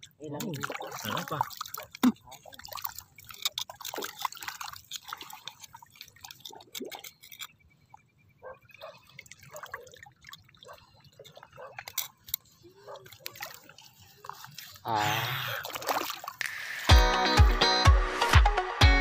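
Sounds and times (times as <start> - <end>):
small wet drips: 0.0 - 14.9.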